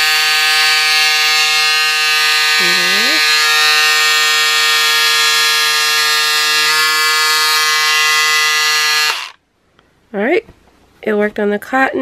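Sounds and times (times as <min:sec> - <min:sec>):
electric scissors motor whine: 0:00.0 - 0:09.4.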